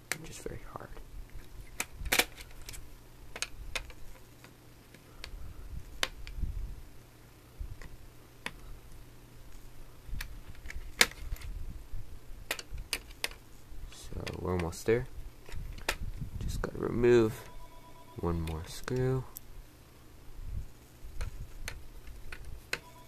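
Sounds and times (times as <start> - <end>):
low rumble of parts handled: 0.0 - 17.6, 18.2 - 23.0.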